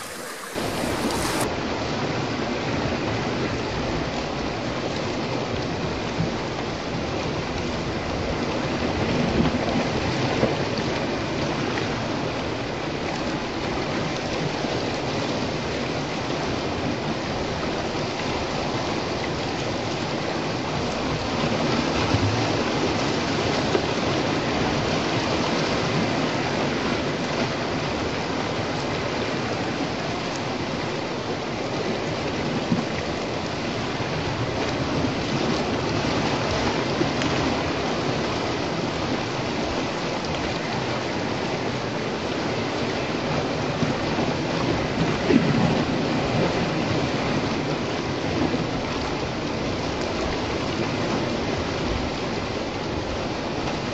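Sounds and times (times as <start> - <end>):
sea waves splashing on rocks: 0.0 - 1.5
surf hissing: 0.0 - 1.5.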